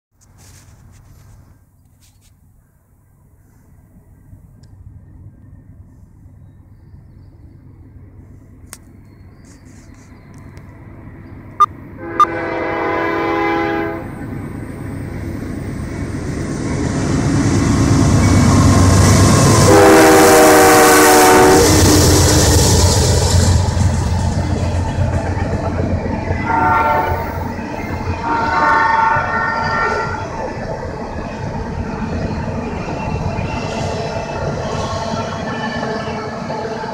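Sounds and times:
locomotive air horn: 0:12.0 - 0:14.2, 0:19.6 - 0:22.3, 0:26.4 - 0:27.4, 0:28.2 - 0:30.2.

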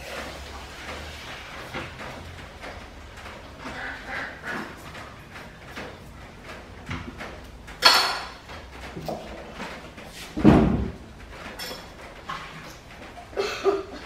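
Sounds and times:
bright clatter: 0:00.1 - 0:13.8
dishes and utensils clicking: 0:04.5 - 0:09.9, 0:11.3 - 0:13.2.

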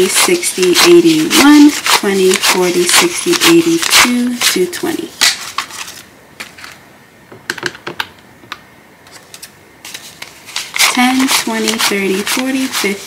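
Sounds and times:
banknotes being counted by hand: 0:00.0 - 0:05.9, 0:09.9 - 0:13.0.

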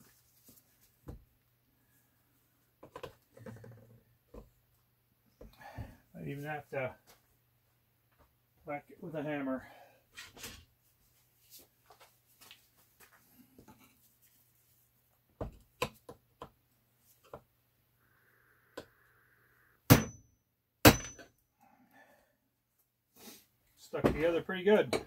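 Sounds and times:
hammer striking chisel: 0:19.9 - 0:20.2, 0:20.8 - 0:21.3.

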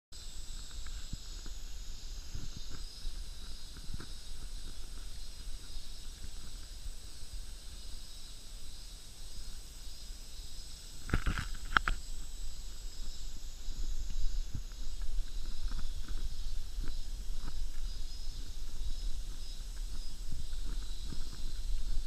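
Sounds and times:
outdoor hiss: 0:00.1 - 0:22.0
soft footsteps: 0:13.0 - 0:22.0.

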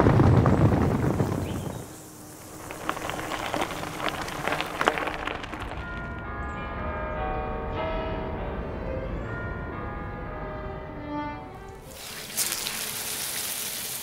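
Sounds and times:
sharp clicks and crackles: 0:02.4 - 0:06.2
bells ringing: 0:05.6 - 0:11.2.

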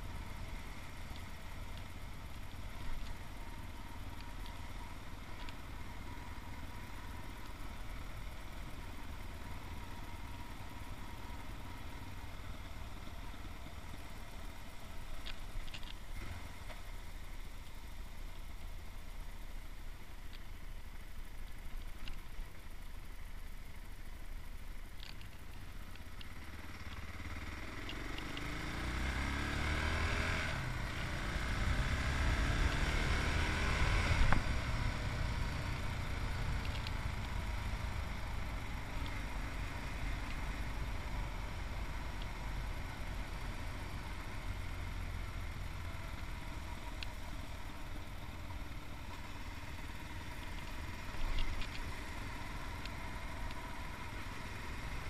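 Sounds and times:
gear change: 0:20.0 - 0:55.0
motorcycle engine accelerating: 0:25.3 - 0:55.0.

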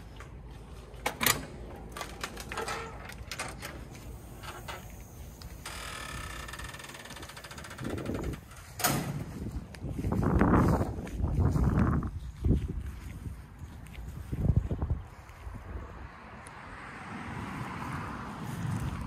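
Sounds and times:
screen door clacking: 0:01.0 - 0:04.9, 0:05.5 - 0:09.3.

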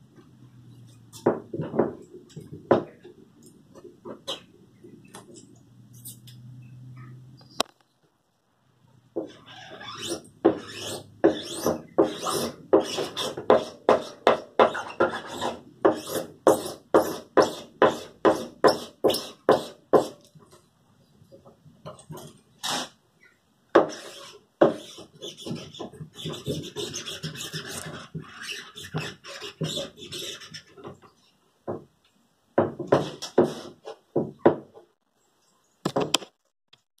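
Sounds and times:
hand tool scraping wooden frame: 0:09.2 - 0:20.6, 0:23.8 - 0:31.2, 0:32.8 - 0:34.0.

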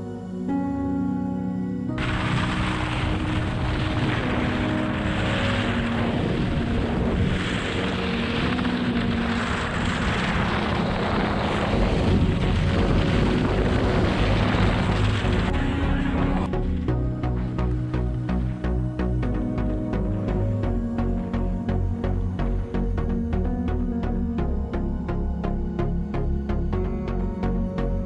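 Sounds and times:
wind on microphone: 0:01.9 - 0:21.7
skis carving snow: 0:02.0 - 0:18.7.

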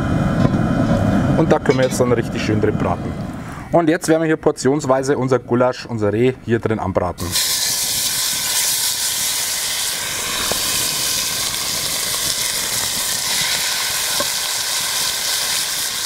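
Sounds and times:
meat sizzling in hot oil: 0:07.2 - 0:16.0.

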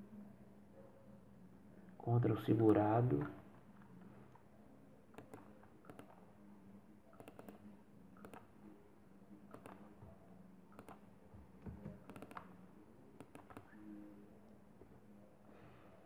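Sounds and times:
computer mouse clicks: 0:05.1 - 0:06.2, 0:07.2 - 0:08.5, 0:09.5 - 0:10.0, 0:10.7 - 0:11.1, 0:11.8 - 0:12.5, 0:13.2 - 0:13.8.

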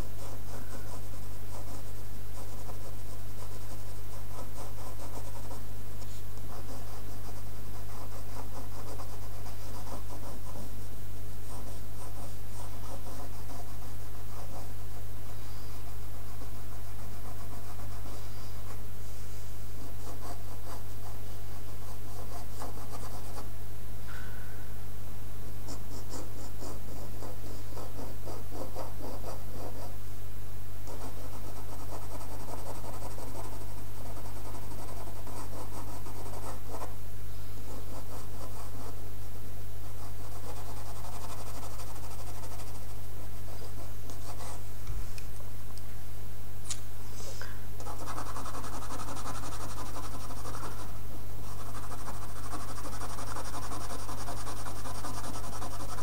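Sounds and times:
pencil scratching on paper: 0:00.0 - 0:05.7, 0:06.5 - 0:10.8, 0:11.4 - 0:18.8, 0:19.8 - 0:23.5, 0:25.7 - 0:30.0, 0:30.9 - 0:37.0, 0:37.7 - 0:39.0, 0:39.8 - 0:44.6, 0:47.8 - 0:56.0
low hum: 0:23.6 - 0:25.6.

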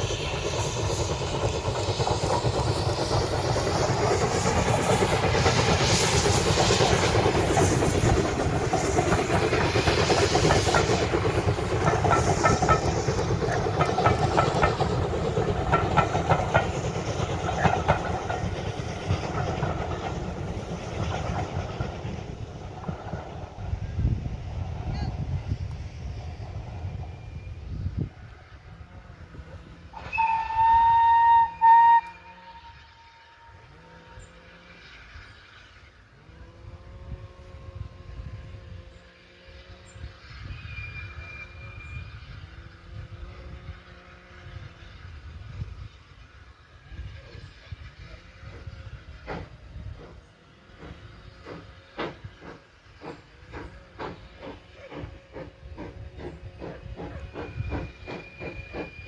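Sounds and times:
steam locomotive chuffing: 0:00.0 - 0:59.0
steam locomotive whistle blasts: 0:29.9 - 0:42.8, 0:56.5 - 0:59.0.

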